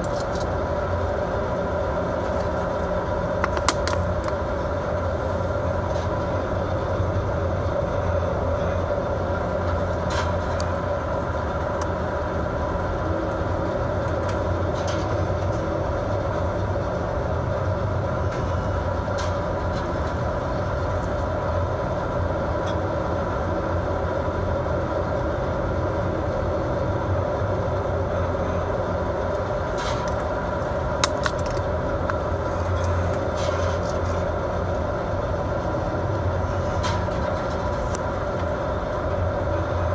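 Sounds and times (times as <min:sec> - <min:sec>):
boat engine droning: 0:00.0 - 0:39.9.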